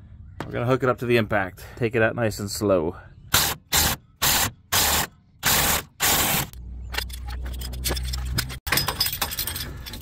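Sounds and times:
metal clinking and scraping: 6.9s - 10.0s.

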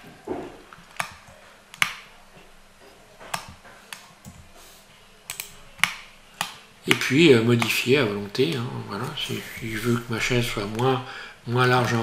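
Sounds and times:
mouse and keyboard clicks: 0.8s - 2.1s, 5.3s - 7.8s.

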